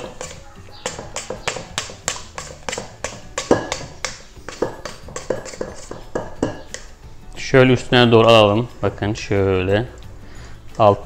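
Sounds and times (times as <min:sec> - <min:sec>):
spatula scraping metal bowl: 0:00.0 - 0:06.9.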